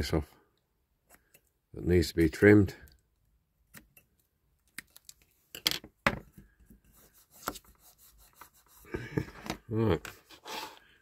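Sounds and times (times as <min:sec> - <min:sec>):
faint rubbing of tape: 0:06.4 - 0:09.0.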